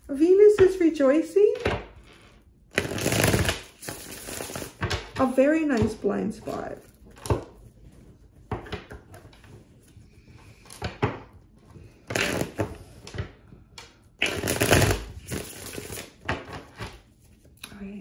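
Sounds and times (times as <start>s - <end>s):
cards rustling when shuffled: 2.7s - 5.4s, 14.2s - 17.6s.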